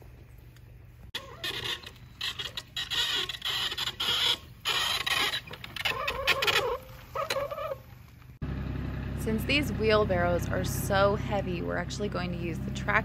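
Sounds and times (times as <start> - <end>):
wheelbarrow creaking: 1.1 - 8.2.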